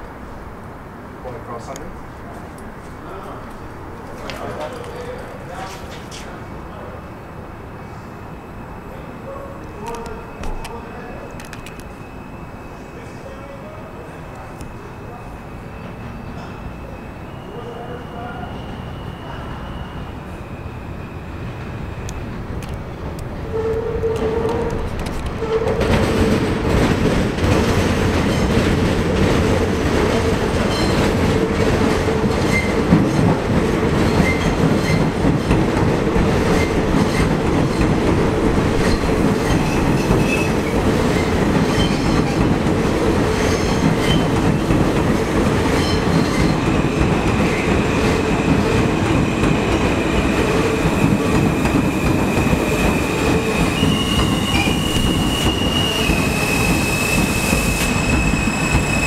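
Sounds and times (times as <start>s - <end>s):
subway train running past: 0.0s - 59.0s
high steady squeal: 50.0s - 59.0s.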